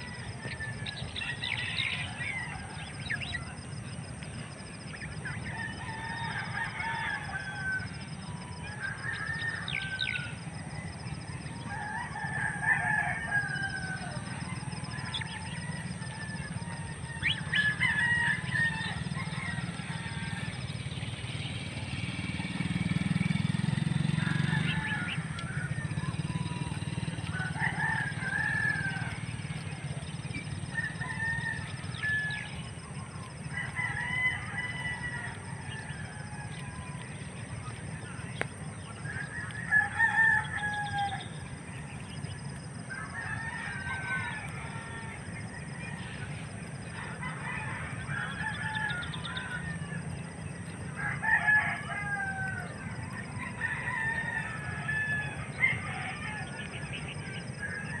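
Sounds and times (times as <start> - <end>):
domestic fowl calling: 4.8 - 37.4, 38.0 - 58.0.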